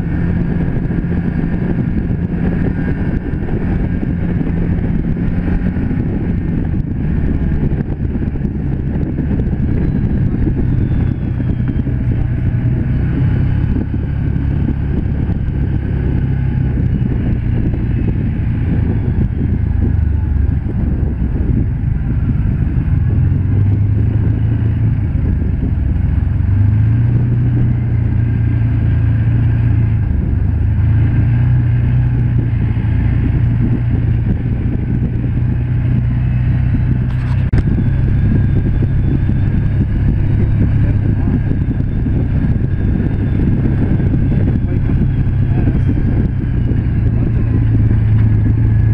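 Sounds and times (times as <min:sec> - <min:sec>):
engine running: 0:00.0 - 0:48.9
ride noise on gravel: 0:32.3 - 0:48.9.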